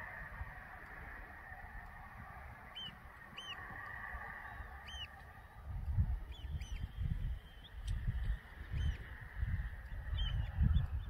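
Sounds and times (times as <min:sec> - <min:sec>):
short high bird calls: 0:02.6 - 0:05.6.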